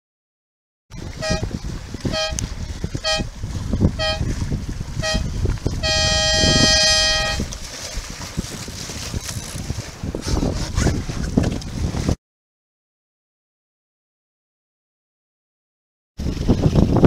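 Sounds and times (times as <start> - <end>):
wind and water noise: 0.9 - 12.2, 16.2 - 17.0
horn blasts: 1.1 - 4.4, 5.0 - 7.6.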